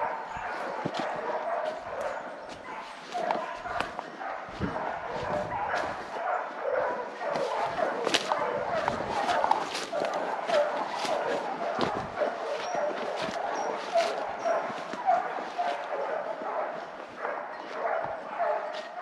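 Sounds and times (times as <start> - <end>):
dogs baying and yapping: 0.0 - 19.0
twigs snapping underfoot: 0.8 - 6.2, 7.3 - 16.0
dead leaves rustling: 7.2 - 15.9.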